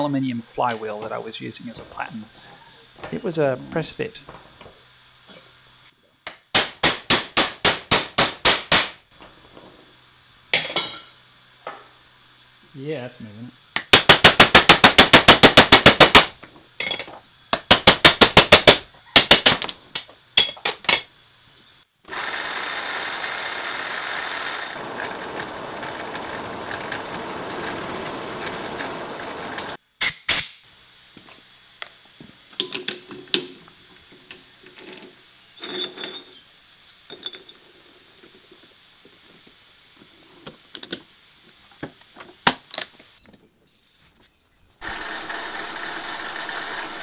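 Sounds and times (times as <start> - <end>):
steady hiss: 0.0 - 19.0, 19.6 - 22.1, 24.9 - 47.0
rapid hammering impacts: 13.9 - 16.4.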